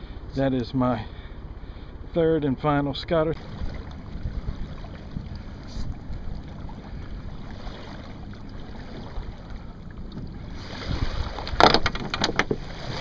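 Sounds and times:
water lapping: 0.0s - 13.0s
splashing and rustling: 3.4s - 13.0s
wind buffeting microphone: 3.4s - 13.0s.

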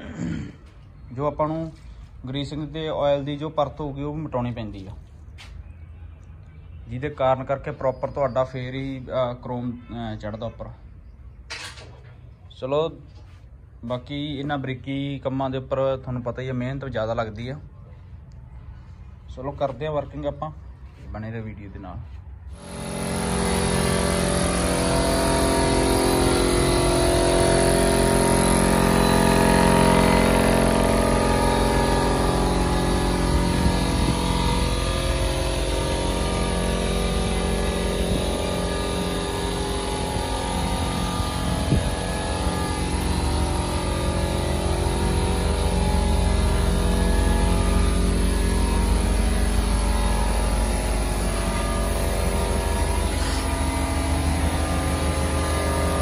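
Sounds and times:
air compressor running: 0.0s - 5.5s, 22.0s - 56.0s
paint spray gun hissing: 50.4s - 55.8s.

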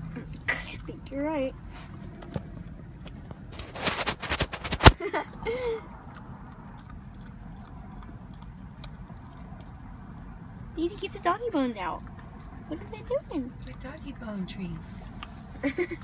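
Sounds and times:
rustling and knocking: 3.6s - 5.0s
dog licking wet smacking: 4.7s - 14.2s.

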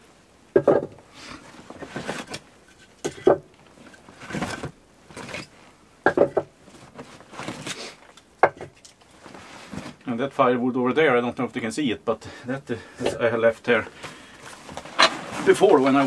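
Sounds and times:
items knocking and clinking: 0.6s - 1.0s, 1.8s - 6.5s, 8.4s - 9.0s
fabric rustling: 6.6s - 8.1s, 9.0s - 10.0s, 13.9s - 16.0s
gear being moved about: 14.0s - 16.0s.

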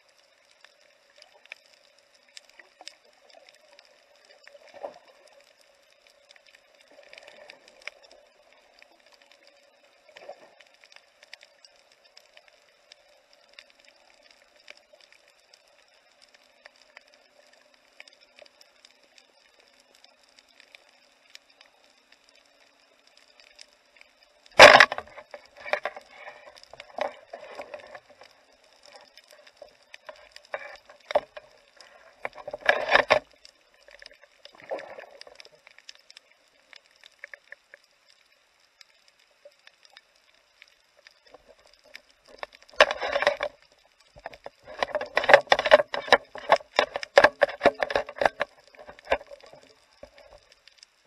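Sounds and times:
clicks and crackles: 0.0s - 51.0s
faint steady hum: 0.0s - 51.0s
underwater knocks and clatter: 24.5s - 35.9s, 41.0s - 50.6s.

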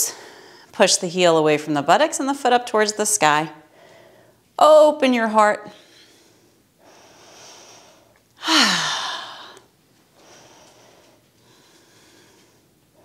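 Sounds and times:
person breathing deeply: 5.8s - 13.0s
voiced sigh: 8.4s - 9.7s.

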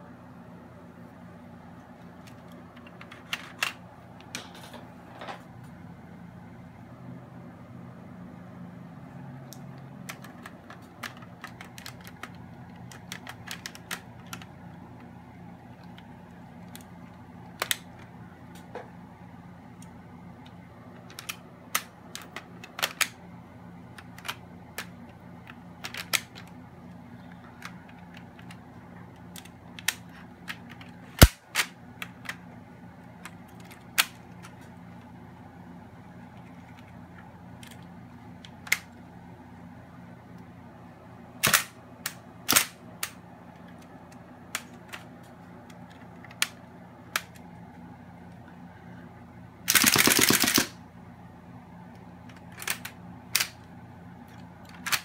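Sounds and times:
rapid toy rifle burst: 49.7s - 50.8s
toy rifle plastic clacks: 49.7s - 50.8s, 52.3s - 53.6s.

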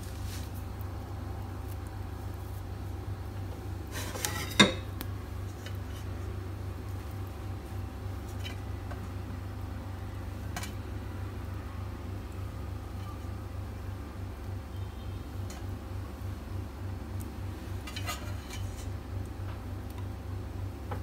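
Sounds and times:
steady low hum: 0.0s - 21.0s
kitchenware clattering: 4.0s - 4.9s.

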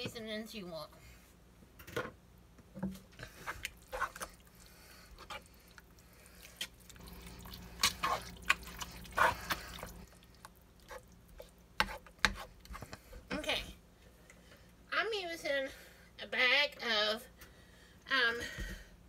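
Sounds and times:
spoon stirring thick mixture: 2.8s - 13.6s.

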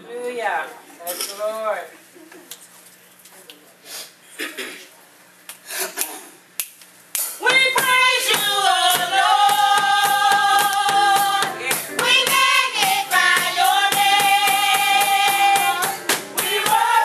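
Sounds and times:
women's choir singing gospel: 7.4s - 17.0s
hand claps: 8.4s - 16.8s.

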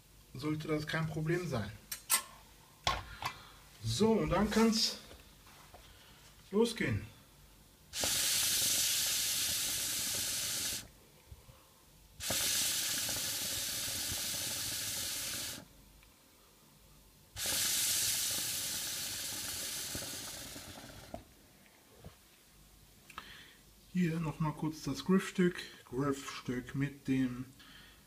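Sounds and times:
hookah draws hissing: 7.9s - 10.9s, 12.2s - 15.7s, 17.4s - 21.3s.

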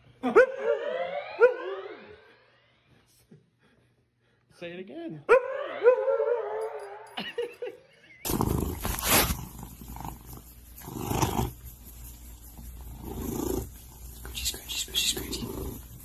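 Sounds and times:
cat purring: 8.3s - 16.0s.

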